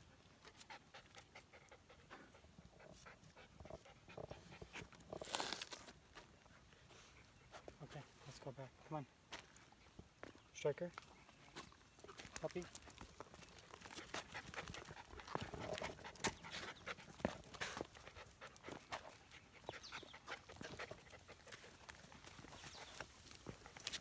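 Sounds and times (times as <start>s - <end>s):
dogs panting: 0.0s - 5.2s, 6.2s - 8.4s, 11.5s - 24.0s
footsteps on rock trail: 9.3s - 19.1s, 20.3s - 24.0s.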